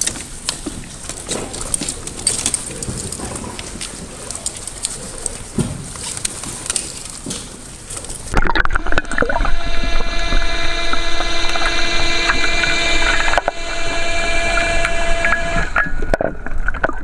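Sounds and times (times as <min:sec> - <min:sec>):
underwater scooter motors whining: 0:08.1 - 0:17.0
low underwater rush: 0:08.3 - 0:17.0.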